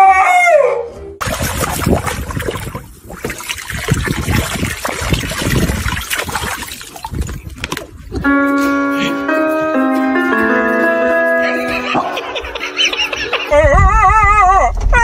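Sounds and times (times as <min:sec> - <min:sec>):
water splashing in paddling pool: 0:01.2 - 0:08.0.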